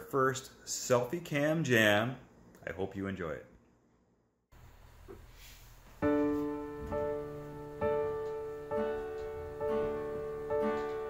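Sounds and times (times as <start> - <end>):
digital piano chords: 6.0 - 11.0.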